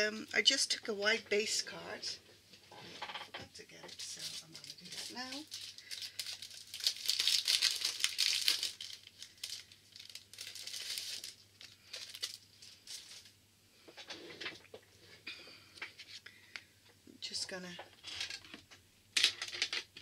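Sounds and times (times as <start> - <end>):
cardstock rustling and crinkling: 3.6 - 13.4.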